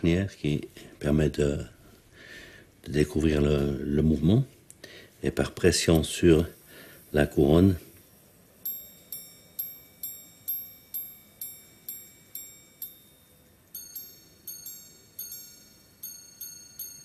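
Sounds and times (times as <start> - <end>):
watch chiming on gongs: 8.6 - 17.0.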